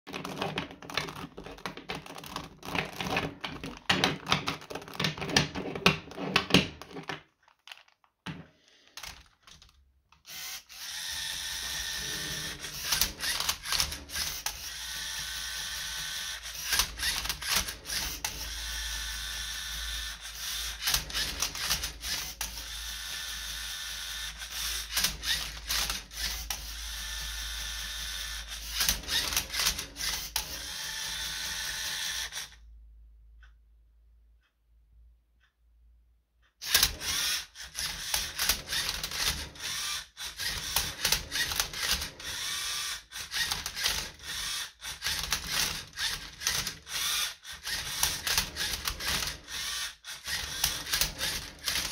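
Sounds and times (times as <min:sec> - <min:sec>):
cube clacking: 0:00.1 - 0:11.0, 0:43.3 - 0:49.6
robot motors whirring: 0:10.3 - 0:32.5, 0:36.6 - 0:51.9.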